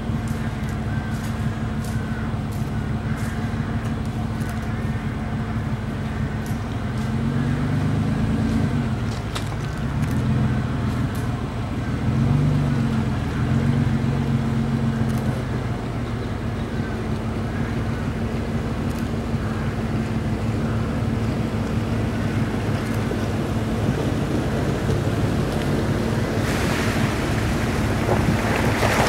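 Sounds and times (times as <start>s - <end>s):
pickup engine revving: 0.0s - 29.0s
rushing water: 19.3s - 29.0s.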